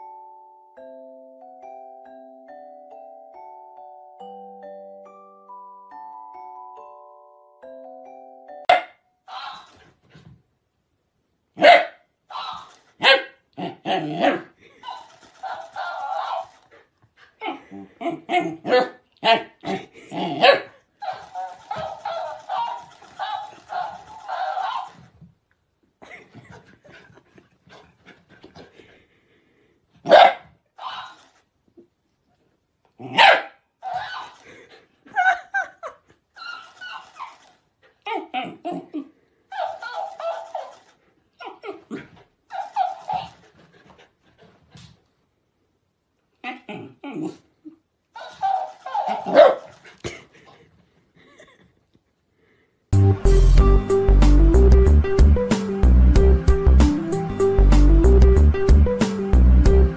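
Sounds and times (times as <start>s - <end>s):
dog barking: 8.7s - 9.7s, 11.6s - 16.6s, 18.0s - 19.8s, 20.4s - 25.0s, 30.0s - 31.2s, 33.1s - 34.4s, 48.2s - 49.8s.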